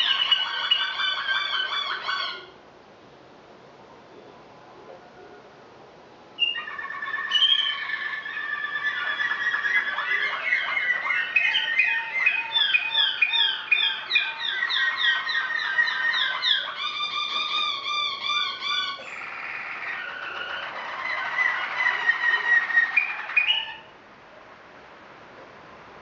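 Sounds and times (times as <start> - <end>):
canaries singing: 0.0 - 2.6, 6.4 - 24.0.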